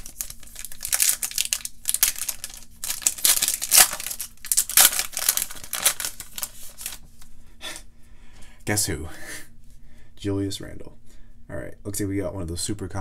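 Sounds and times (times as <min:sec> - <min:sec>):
foil wrapper crinkling and tearing: 0:00.0 - 0:07.1.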